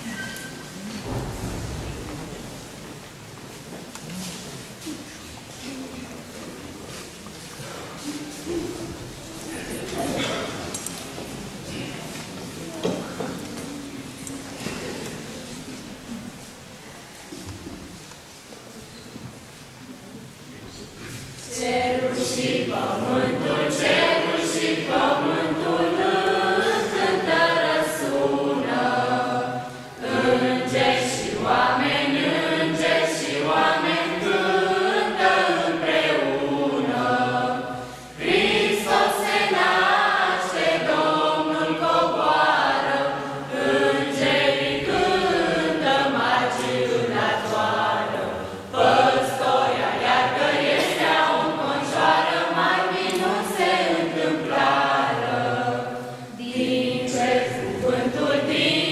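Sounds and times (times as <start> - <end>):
children singing unaccompanied: 21.4 - 58.9.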